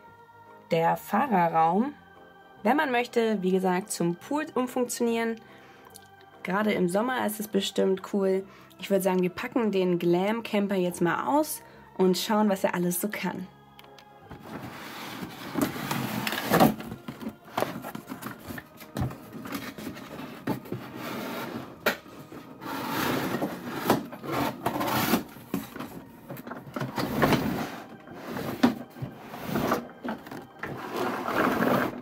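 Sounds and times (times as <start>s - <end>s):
cardboard rustling and scraping: 14.3s - 32.0s.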